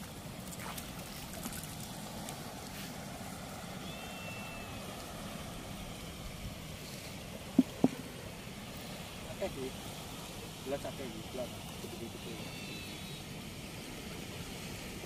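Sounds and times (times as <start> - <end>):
flowing water rushing: 0.0 - 15.0
sharp knocks: 7.6 - 8.0.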